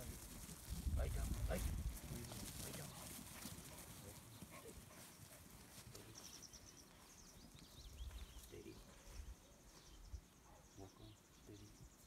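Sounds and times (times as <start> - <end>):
wind on microphone: 0.0 - 2.2
small birds chirping: 0.0 - 12.0.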